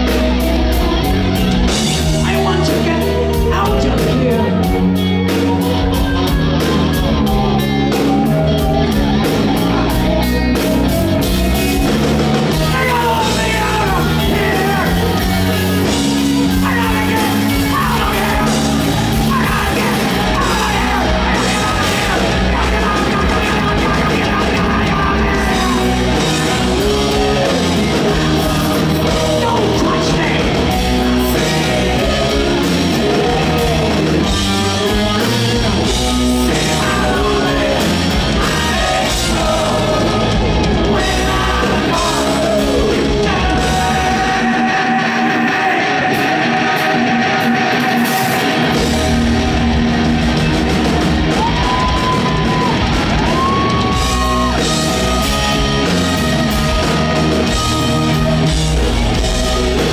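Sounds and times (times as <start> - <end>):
live hard rock band: 0.0 - 59.9
man singing and yelling: 1.9 - 5.9, 11.5 - 49.7.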